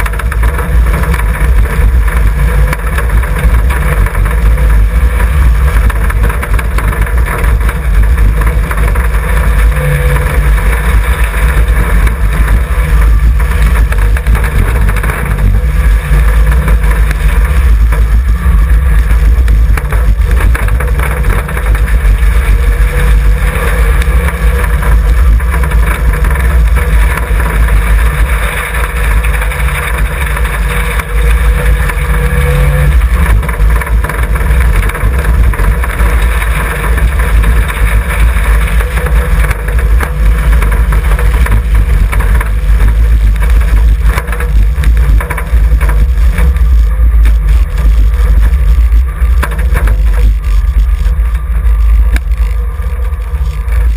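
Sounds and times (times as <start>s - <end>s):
car engine running: 0.0s - 53.9s
wind and road noise: 0.0s - 53.9s.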